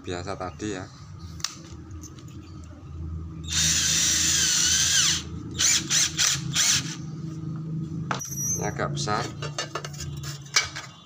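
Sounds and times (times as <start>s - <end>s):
cordless drill motor whining: 3.5s - 7.0s.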